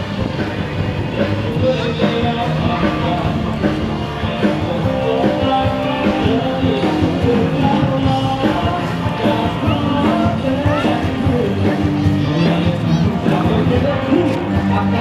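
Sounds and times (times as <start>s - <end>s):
rock music with guitar: 0.0s - 15.0s.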